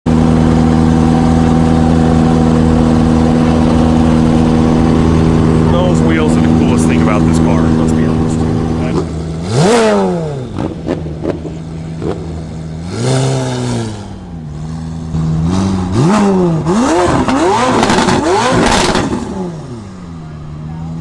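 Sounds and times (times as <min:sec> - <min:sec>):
car engine revving: 0:00.1 - 0:21.0
exhaust pops: 0:02.9 - 0:12.5, 0:15.1 - 0:19.4.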